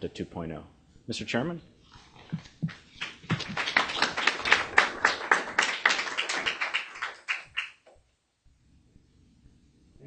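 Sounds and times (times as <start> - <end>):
audience applauding: 2.3 - 7.8.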